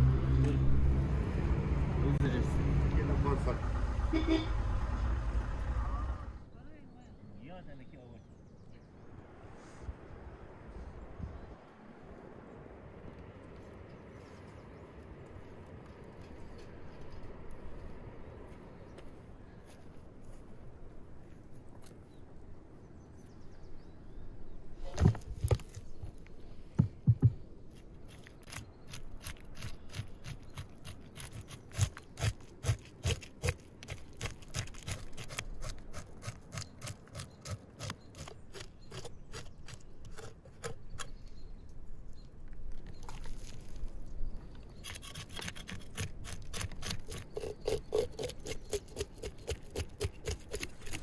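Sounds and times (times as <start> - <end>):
heavy knocks on wooden board: 26.8 - 27.4.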